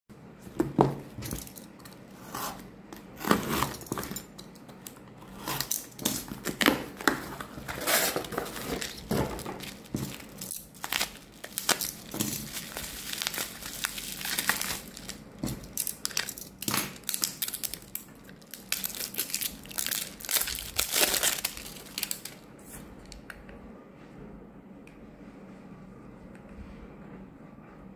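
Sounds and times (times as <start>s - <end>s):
plastic mailer and bubble wrap crinkling: 5.6s - 23.2s.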